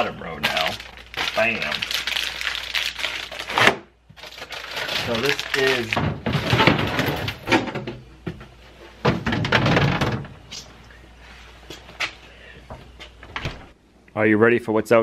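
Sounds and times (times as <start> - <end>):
plastic scraping and rustling: 0.4 - 7.7.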